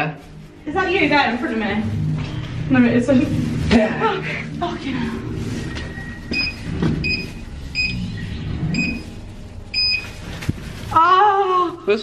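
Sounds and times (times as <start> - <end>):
low steady rumble: 0.2 - 11.8
short high electronic beeps: 6.0 - 9.2.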